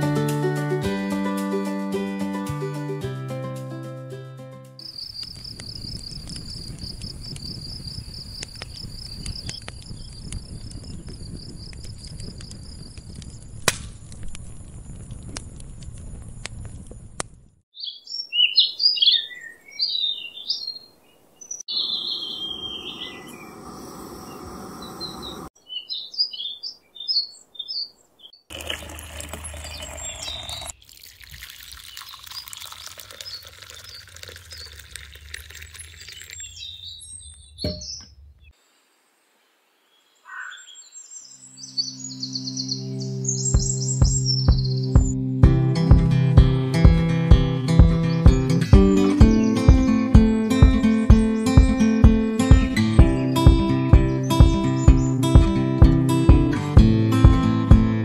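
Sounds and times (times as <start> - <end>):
birds chirping and singing: 4.8 - 13.0, 17.8 - 28.5, 29.5 - 30.7, 36.0 - 38.5, 39.9 - 45.2, 48.0 - 55.5.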